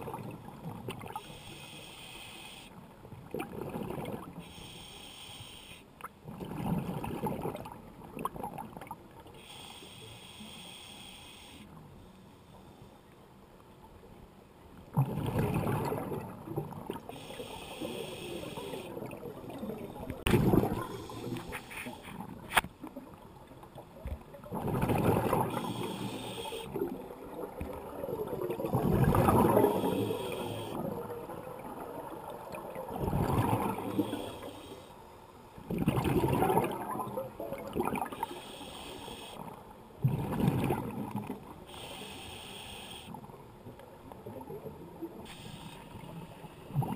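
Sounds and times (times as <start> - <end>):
regulator inhalation hiss: 1.2 - 2.7, 4.4 - 5.9, 9.4 - 11.7, 17.1 - 19.0, 20.8 - 22.1, 25.6 - 26.8, 29.7 - 30.8, 33.9 - 35.0, 38.2 - 39.4, 41.7 - 43.2, 45.3 - 46.0
bubbles gurgling underwater: 3.2 - 4.3, 6.2 - 9.0, 14.9 - 17.1, 24.4 - 25.8, 26.9 - 29.9, 30.9 - 34.0, 35.7 - 38.2, 40.0 - 41.4.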